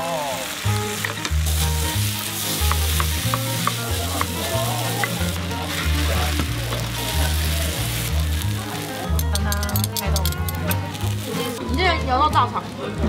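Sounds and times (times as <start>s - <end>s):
fried rice sizzling in a pan: 0.0s - 11.8s
spatulas clacking against pan: 9.1s - 11.0s.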